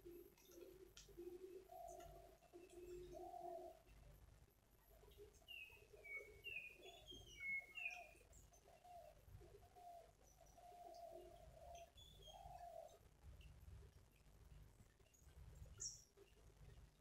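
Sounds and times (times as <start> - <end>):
low bird calls: 0.0 - 4.0, 5.0 - 13.0.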